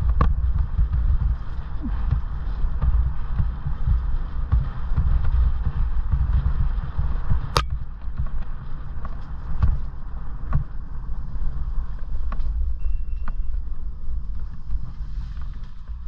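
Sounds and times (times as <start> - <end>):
bike rattling and knocking: 0.0 - 10.9
wind and ground rumble: 0.0 - 16.0.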